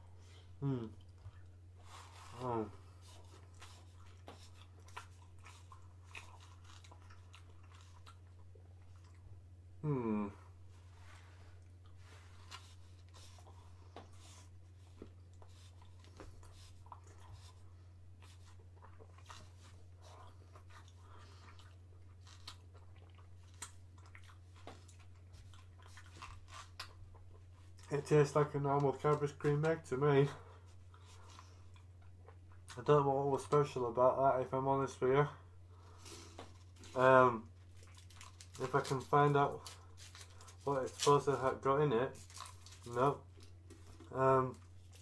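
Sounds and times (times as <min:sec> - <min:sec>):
chewing and mouth clicks: 0:03.0 - 0:09.4, 0:11.6 - 0:27.9, 0:30.9 - 0:32.8, 0:37.6 - 0:38.8.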